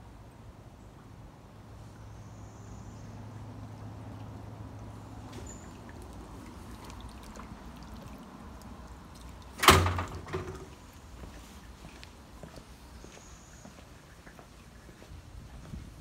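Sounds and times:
door banging shut: 0:09.6 - 0:10.7.

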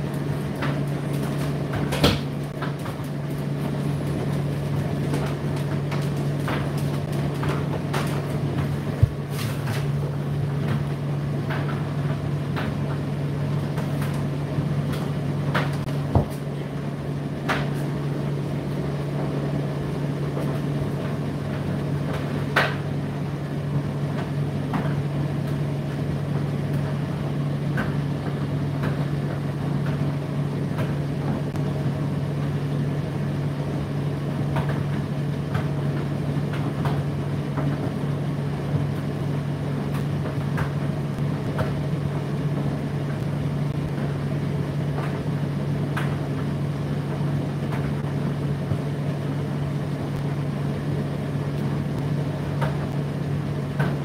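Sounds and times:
tumble dryer motor hum: 0:00.0 - 0:54.0.

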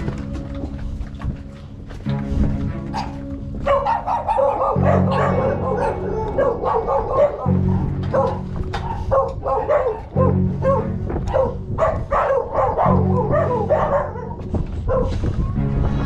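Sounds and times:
dog barking: 0:02.9 - 0:15.4.

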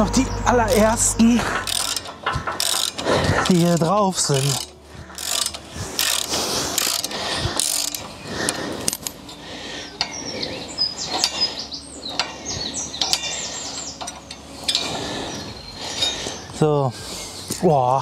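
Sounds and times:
ratchet wrench clicking: 0:01.6 - 0:08.1, 0:14.0 - 0:15.0.

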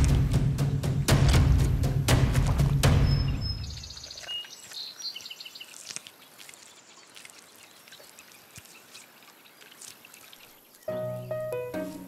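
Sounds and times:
high bird chirps: 0:03.0 - 0:05.8.

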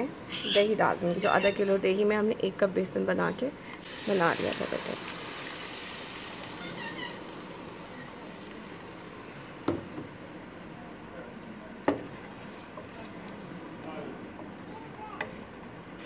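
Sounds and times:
hot oil sizzling in a pot: 0:03.8 - 0:12.6.

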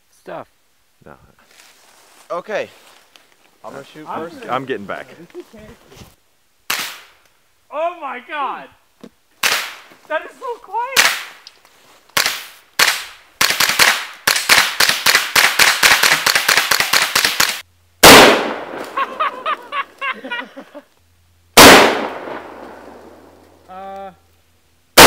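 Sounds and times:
suppressed rifle shots: 0:12.2 - 0:19.0, 0:21.6 - 0:23.4
loud rifle shots with echo: 0:18.0 - 0:18.8, 0:21.6 - 0:23.3.

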